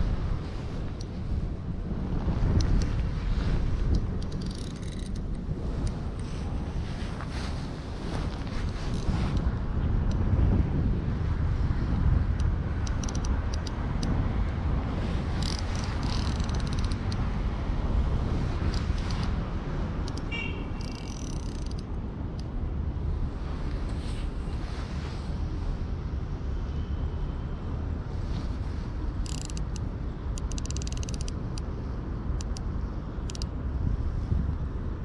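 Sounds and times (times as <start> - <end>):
wind buffeting microphone: 0.0 - 20.1
fishing reel ticking: 4.2 - 5.4, 12.9 - 13.7, 15.4 - 17.2, 20.8 - 21.8, 29.2 - 29.8, 30.4 - 31.6, 33.2 - 33.5.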